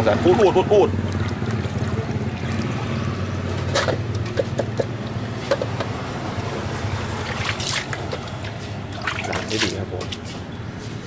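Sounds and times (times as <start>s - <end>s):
low machine hum: 0.2s - 3.7s
wet slaps and splashes: 1.0s - 2.8s, 7.2s - 9.8s.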